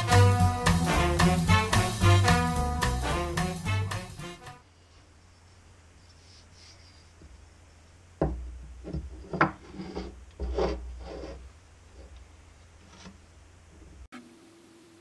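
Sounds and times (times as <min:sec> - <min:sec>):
wooden block knocking on workbench: 0:08.2 - 0:09.6
wood scraping on workbench: 0:08.9 - 0:11.4.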